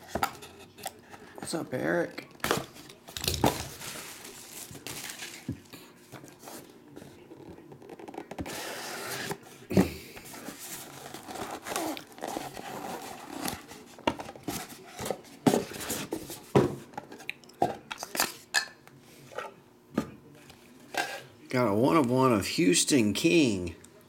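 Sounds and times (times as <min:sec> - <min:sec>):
box packaging tearing and crinkling: 0:10.4 - 0:15.0.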